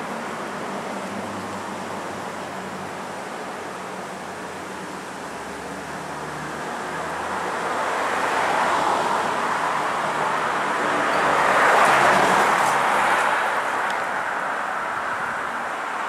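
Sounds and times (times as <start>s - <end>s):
car passing: 5.3s - 16.0s.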